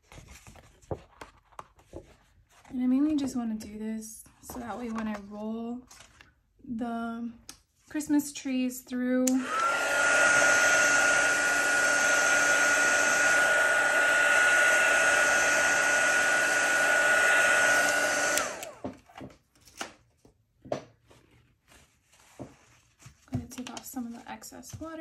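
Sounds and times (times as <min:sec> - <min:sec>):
heat tool fan whining: 0:09.3 - 0:19.0.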